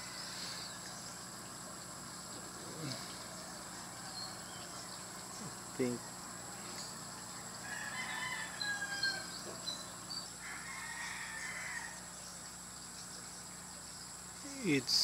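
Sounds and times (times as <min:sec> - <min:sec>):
insects droning: 0:00.0 - 0:15.0
rooster crowing: 0:03.3 - 0:04.9, 0:07.4 - 0:09.8, 0:10.4 - 0:12.1.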